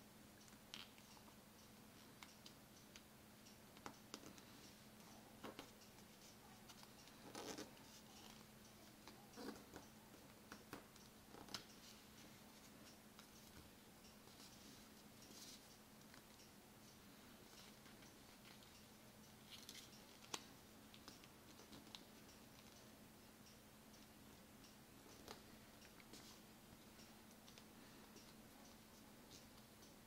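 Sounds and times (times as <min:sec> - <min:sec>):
faint steady hum: 0:00.0 - 0:30.0
soft paper ticks and crinkles: 0:03.7 - 0:30.0.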